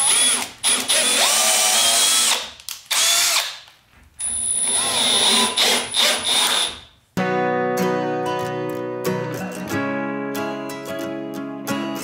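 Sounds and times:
cordless drill drilling into wood: 0.0s - 3.6s, 4.2s - 6.9s.

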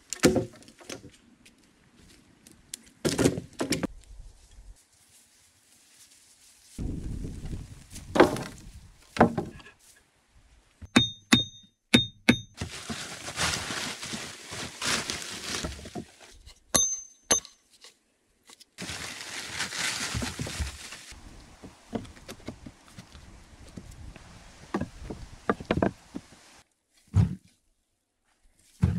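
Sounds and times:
heavy wooden knocks: 9.2s - 9.6s
sharp taps with metallic ring: 10.9s - 12.5s, 16.7s - 17.6s
plastic tarp rustling: 12.6s - 16.3s, 18.8s - 21.2s.

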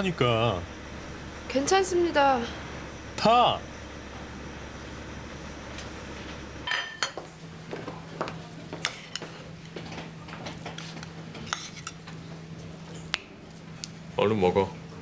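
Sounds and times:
tableware clinking: 6.6s - 7.3s.

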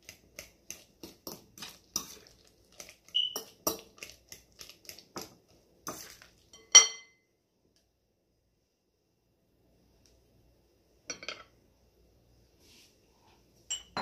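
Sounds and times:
fork scraping glass bowl: 3.1s - 4.0s
fork clinking on glass bowl: 6.6s - 7.2s, 13.7s - 14.0s.

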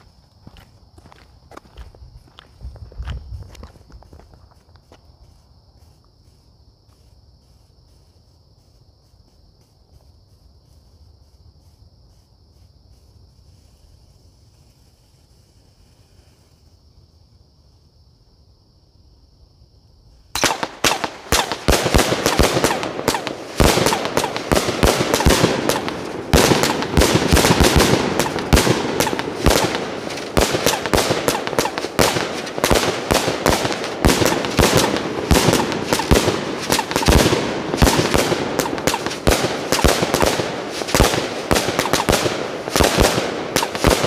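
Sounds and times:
firework launch thumps and bursts: 20.4s - 44.0s.

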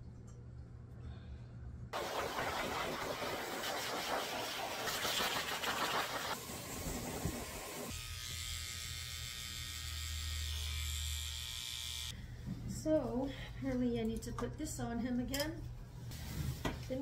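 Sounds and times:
dryer hose rushing air: 2.0s - 7.9s
electric clipper buzzing: 6.3s - 12.2s.

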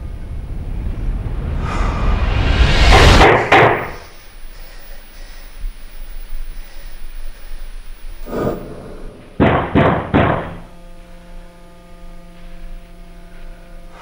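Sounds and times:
low steady hum: 0.0s - 14.0s
heavy knocks on a door: 9.4s - 10.7s.

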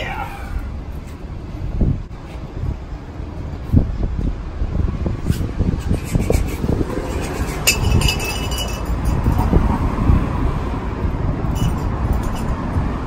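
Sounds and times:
street traffic rumble: 0.0s - 13.0s
wind buffeting microphone: 0.0s - 13.0s
metal pipe clinking on concrete: 7.0s - 9.5s, 11.5s - 12.6s.

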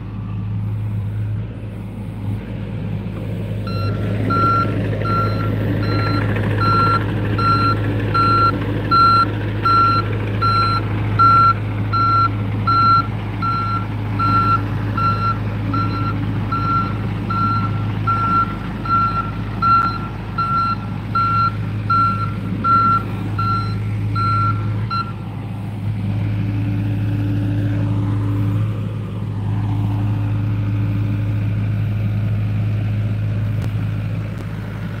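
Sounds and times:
excavator diesel engine running: 0.0s - 35.0s
warning alarm beeping: 3.7s - 25.2s.

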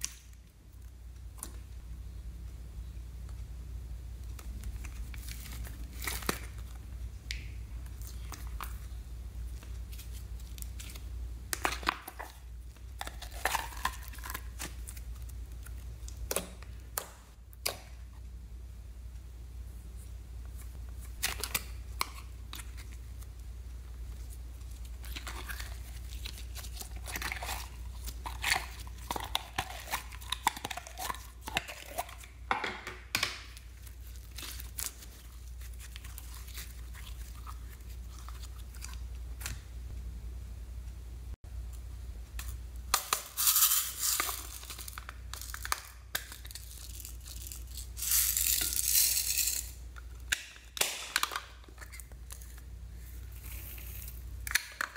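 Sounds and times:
slime squelching and crackling: 4.2s - 17.8s, 21.0s - 32.5s, 33.3s - 39.6s.

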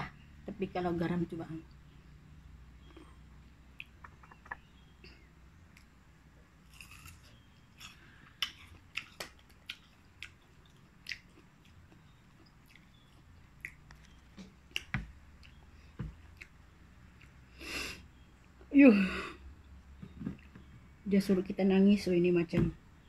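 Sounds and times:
person chewing crisp fruit: 5.7s - 18.7s.

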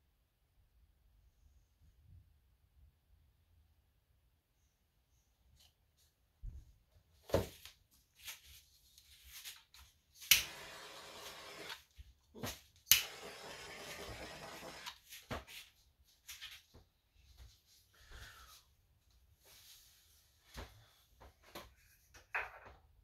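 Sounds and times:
torch flame hissing: 10.3s - 11.8s, 12.9s - 15.0s
torch ignition click: 10.3s - 11.8s, 12.9s - 15.0s.

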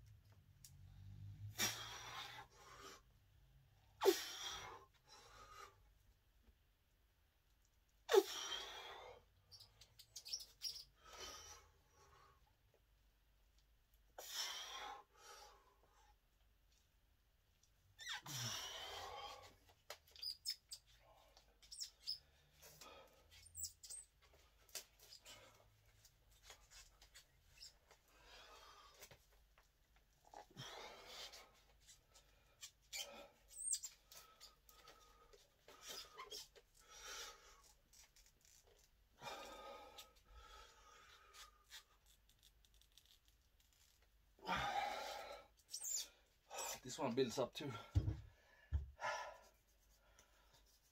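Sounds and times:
short high squeaks: 9.5s - 10.9s, 32.8s - 34.6s, 35.8s - 36.6s, 45.7s - 46.8s
man grunting and breathing: 44.4s - 45.4s.

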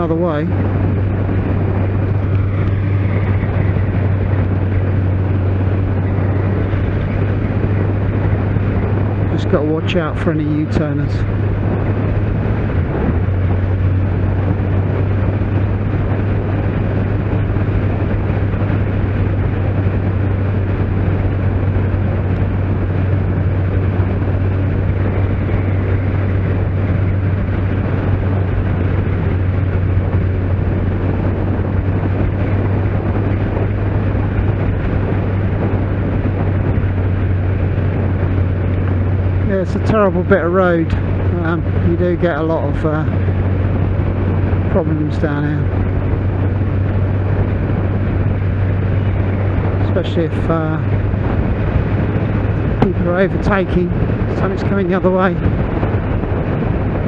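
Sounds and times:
motorcycle engine droning: 0.0s - 57.0s
wind and road noise: 0.0s - 57.0s.

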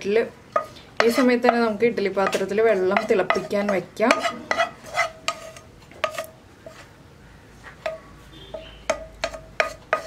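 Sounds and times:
spatula clinking against frying pan: 7.8s - 10.0s.

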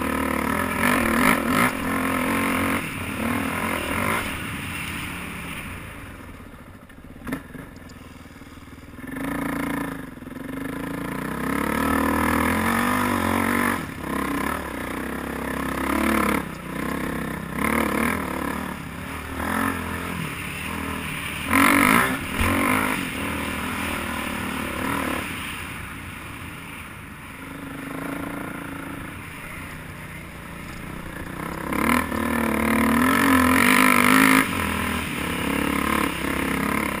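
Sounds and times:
dirt bike engine revving: 0.0s - 5.5s, 8.4s - 25.9s, 27.4s - 37.0s.

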